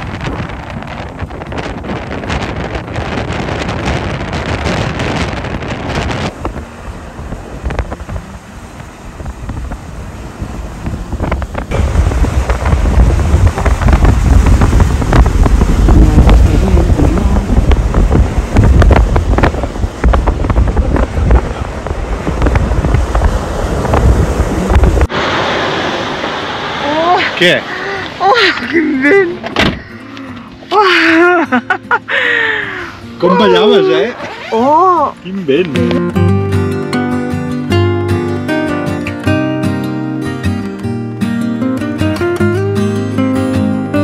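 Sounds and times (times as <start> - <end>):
deep rumble: 0.0 - 27.1
gusty wind buffeting microphone: 0.0 - 28.2.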